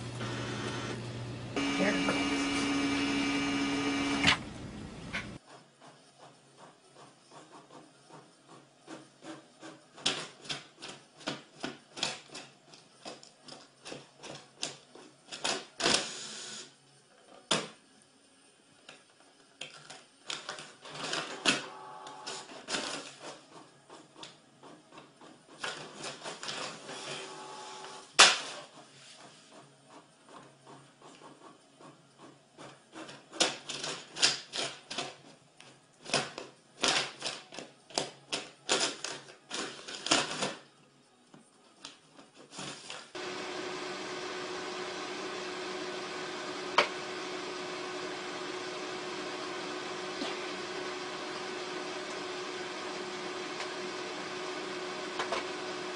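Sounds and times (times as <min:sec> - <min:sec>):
printer motor whirring: 0:00.0 - 0:05.5, 0:20.9 - 0:24.8, 0:26.8 - 0:32.3, 0:43.1 - 0:55.9.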